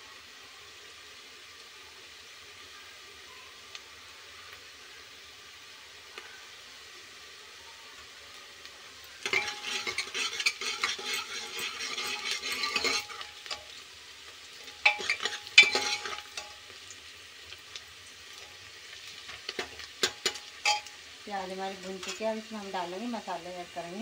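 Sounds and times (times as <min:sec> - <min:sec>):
onions sizzling: 0:00.0 - 0:24.0
ladle scraping pot: 0:09.2 - 0:13.6, 0:14.8 - 0:16.5.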